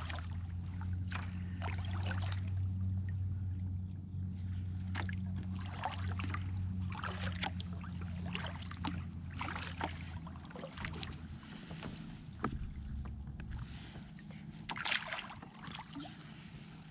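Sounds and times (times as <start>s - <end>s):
paddle splashing water: 0.0s - 3.4s, 4.3s - 16.9s
low steady rumble: 0.0s - 16.9s
light knocks: 11.8s - 13.6s.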